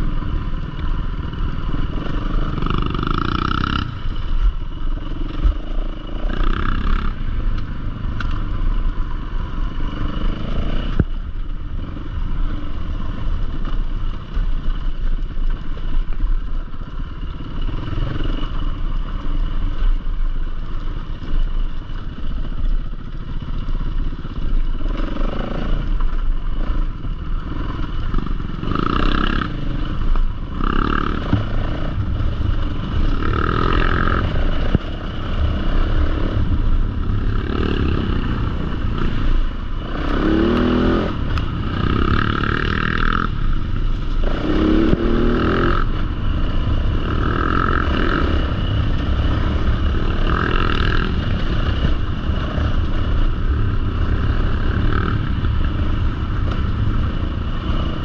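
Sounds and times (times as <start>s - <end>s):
dirt bike engine revving: 0.0s - 4.2s, 5.0s - 7.8s, 23.2s - 58.0s.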